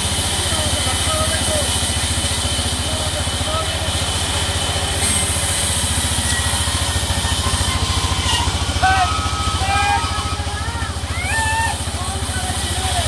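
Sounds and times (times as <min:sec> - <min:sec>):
sawmill engine running: 0:00.0 - 0:13.0
short high gliding calls: 0:05.0 - 0:12.0.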